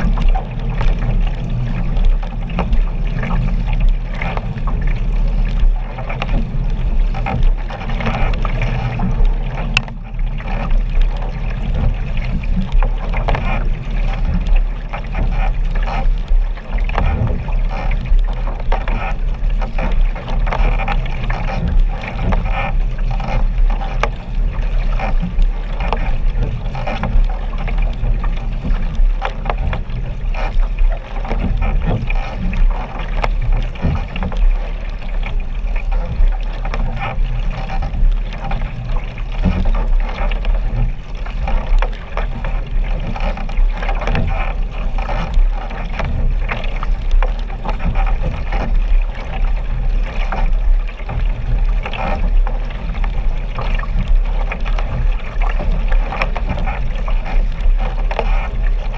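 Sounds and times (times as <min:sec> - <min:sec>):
low rumble: 0:00.0 - 0:58.9
water slapping and splashing: 0:00.0 - 0:58.9.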